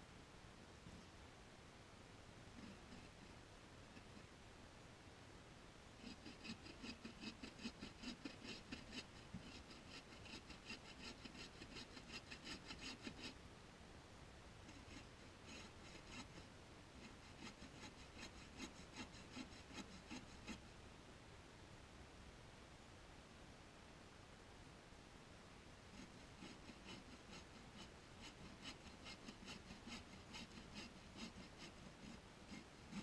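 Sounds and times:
hand saw rasping through log: 6.0 - 13.4, 14.7 - 20.6, 26.0 - 33.0.

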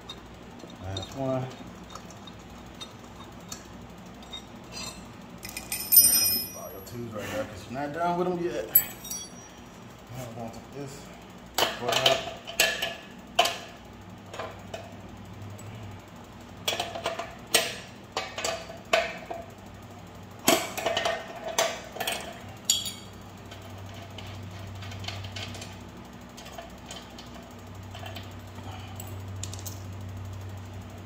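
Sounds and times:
wrenches clinking on metal: 4.2 - 7.0, 8.7 - 9.6, 22.0 - 23.1.

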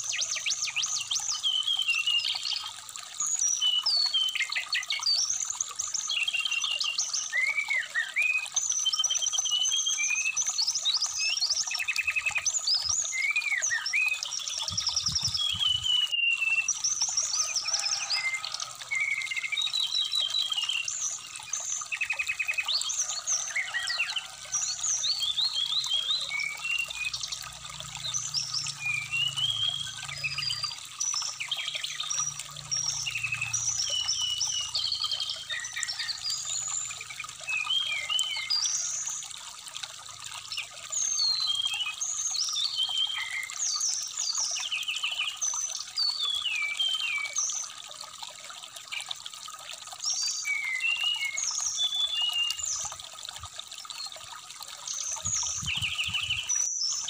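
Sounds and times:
stream trickling: 0.0 - 57.0
bird singing whistled phrases: 15.3 - 16.8.

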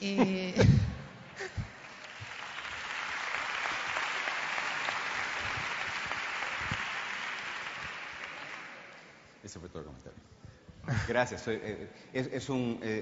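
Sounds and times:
audience applauding: 1.2 - 9.4.

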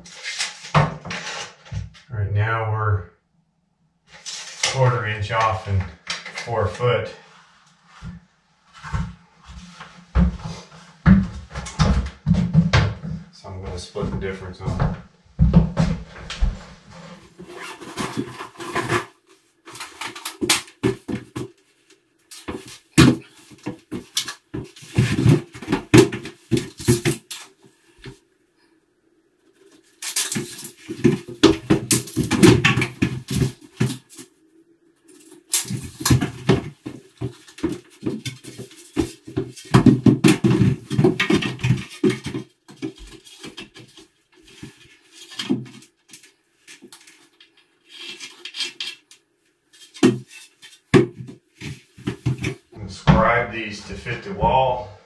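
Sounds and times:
wooden board knocking and clattering: 35.7 - 43.9.

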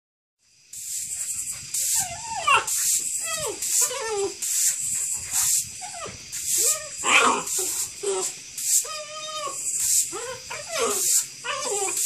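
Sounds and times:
broom swishing on concrete: 0.7 - 12.0
puppy yips and whines: 1.9 - 4.4, 5.8 - 12.0.

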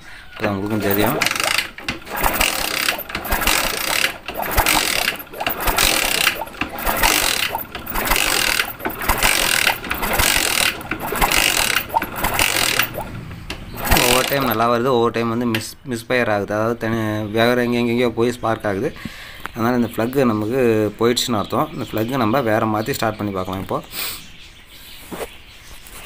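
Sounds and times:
motorcycle engine being kicked over: 0.4 - 14.7
kick-start ratchet clicking: 0.7 - 14.6.

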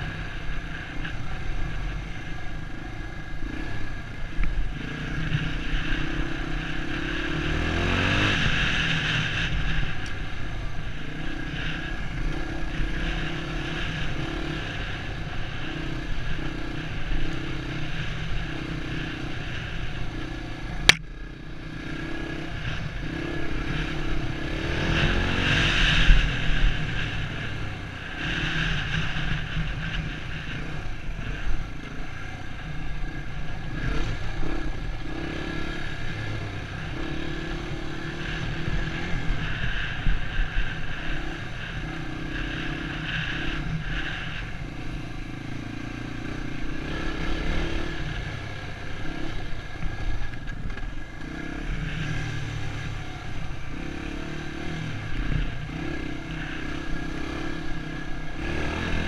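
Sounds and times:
dirt bike engine revving: 0.0 - 59.0
sharp click: 20.8 - 21.2.

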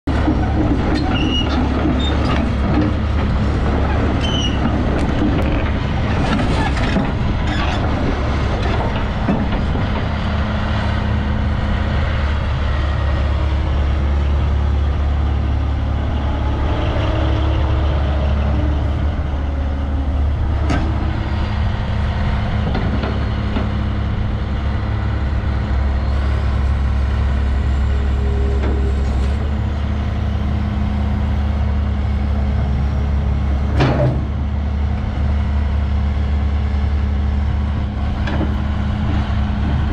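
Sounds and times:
excavator diesel engine running: 0.0 - 39.9
hydraulic whines: 26.0 - 29.7.

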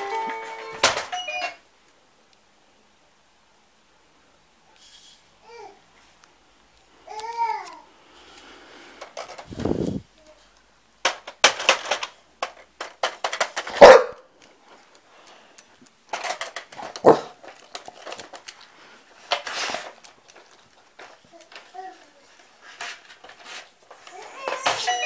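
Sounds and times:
paws clicking on plastic keys: 11.1 - 25.0
dog barks: 13.7 - 14.3, 17.0 - 17.4.

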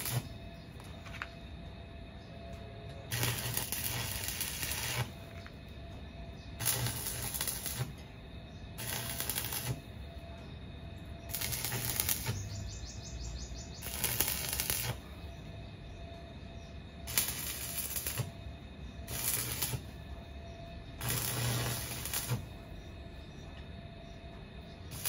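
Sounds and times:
arc welding crackling: 0.0 - 1.4, 2.9 - 8.1, 8.7 - 10.4, 11.0 - 15.4, 17.0 - 20.2, 20.9 - 22.9, 24.8 - 25.0
low electrical hum: 0.0 - 25.0.

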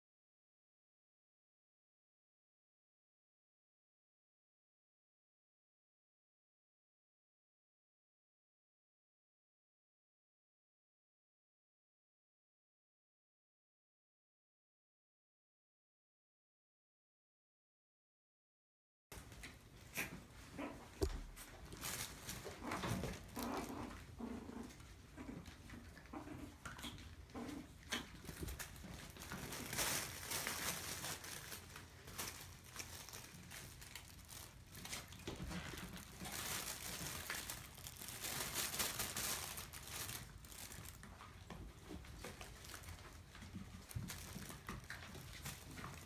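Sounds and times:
paws scrabbling: 19.2 - 46.0
play tunnel and bedding rustling: 19.2 - 46.0
puppy vocal sounds: 19.3 - 29.7.

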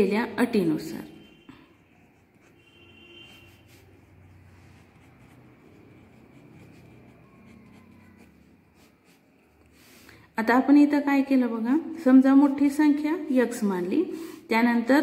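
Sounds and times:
pen writing on paper: 1.2 - 9.8.

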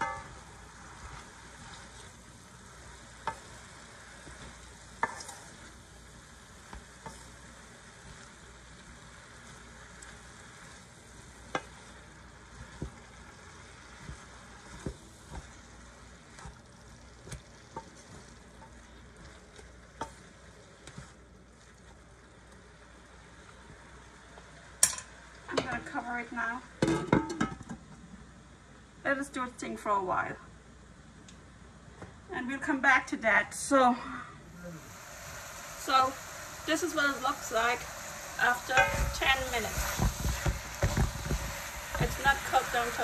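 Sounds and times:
spoon stirring vegetables in pot: 0.0 - 22.0, 35.0 - 43.0
frying sizzle: 0.0 - 28.6, 34.5 - 43.0.

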